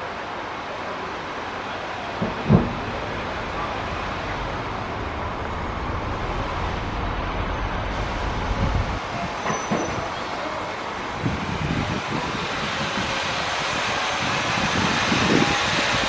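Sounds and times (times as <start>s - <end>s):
jet engine rumble: 2.0s - 9.3s.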